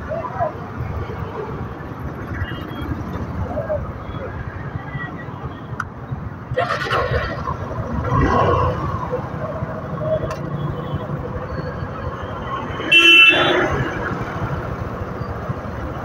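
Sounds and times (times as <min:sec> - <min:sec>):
motorcycle and car traffic: 0:00.0 - 0:16.0
vehicle horn honk: 0:12.9 - 0:13.7.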